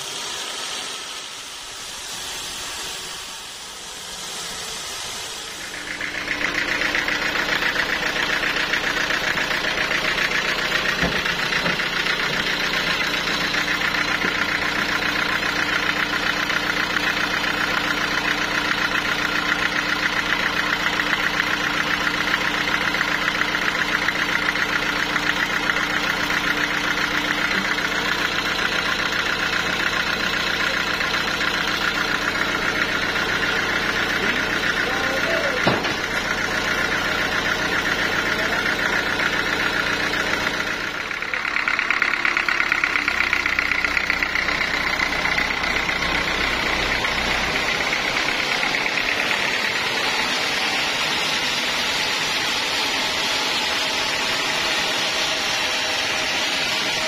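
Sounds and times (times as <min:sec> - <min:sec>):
saw blade hissing through wood: 0:00.0 - 0:07.8
sawmill engine running: 0:00.0 - 0:57.0.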